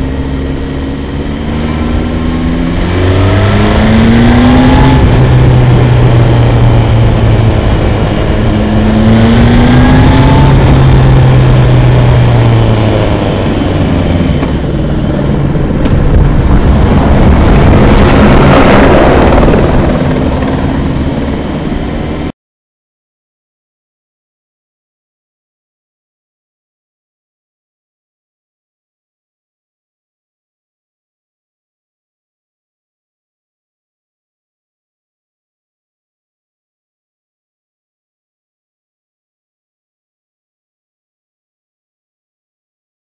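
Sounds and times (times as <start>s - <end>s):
motorcycle engine accelerating: 0.0s - 22.3s
wind and road noise: 0.0s - 22.3s.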